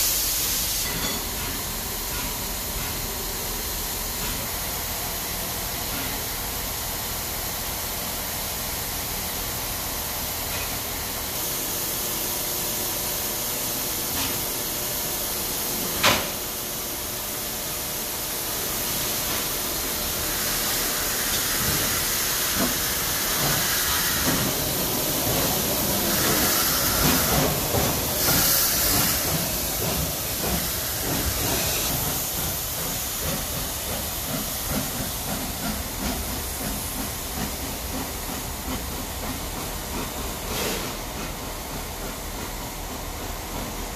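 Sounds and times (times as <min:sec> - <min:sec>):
steam hissing: 0:00.0 - 0:43.9.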